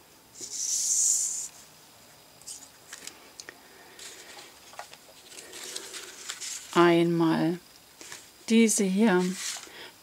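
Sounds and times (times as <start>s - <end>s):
paper rustling: 4.0s - 6.9s, 8.0s - 8.3s, 9.0s - 9.8s.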